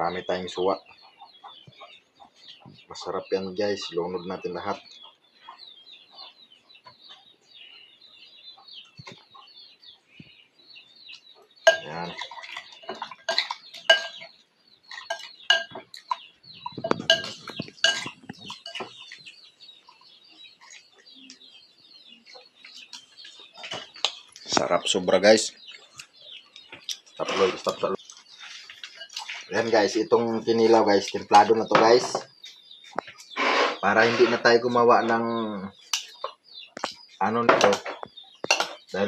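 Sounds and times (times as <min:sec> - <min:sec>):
metal spoon clinking in ceramic bowl: 0:11.7 - 0:14.3, 0:14.9 - 0:16.2, 0:16.8 - 0:19.0, 0:38.5 - 0:38.8.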